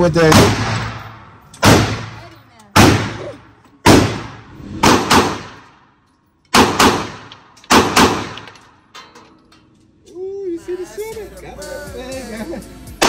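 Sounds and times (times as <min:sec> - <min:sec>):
handgun shots with reverberation: 0:00.2 - 0:03.2, 0:03.8 - 0:05.9, 0:06.5 - 0:08.7.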